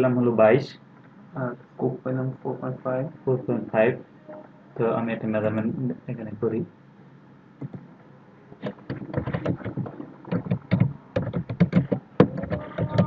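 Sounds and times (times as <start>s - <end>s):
typing on keyboard: 8.7s - 13.0s.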